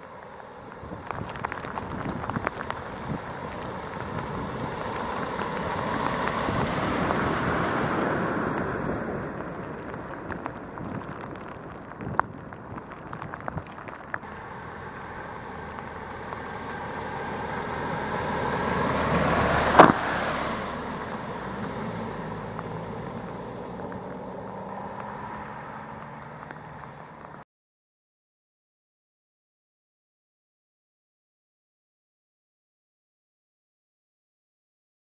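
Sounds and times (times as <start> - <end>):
water rushing from wheels: 0.0 - 27.0
low traffic engine hum: 0.0 - 27.4
lorry diesel engine: 14.2 - 27.4.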